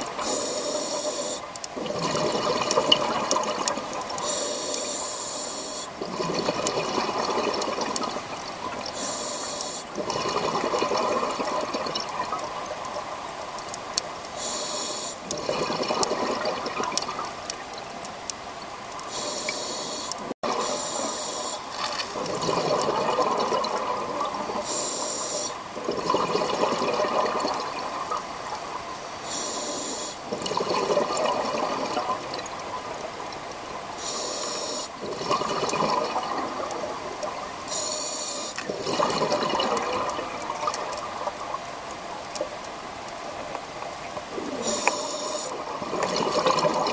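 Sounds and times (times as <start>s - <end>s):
regulator inhale hiss: 0.2s - 1.6s, 4.2s - 6.0s, 8.9s - 10.0s, 14.4s - 15.3s, 19.1s - 21.8s, 24.6s - 25.6s, 29.2s - 30.3s, 34.0s - 35.0s, 37.7s - 38.6s, 44.5s - 45.6s
exhaled bubbles rushing: 1.7s - 4.2s, 6.0s - 9.0s, 9.9s - 13.0s, 15.2s - 17.3s, 21.7s - 24.7s, 25.7s - 28.4s, 30.3s - 33.0s, 35.0s - 37.4s, 38.6s - 41.5s, 45.5s - 46.9s.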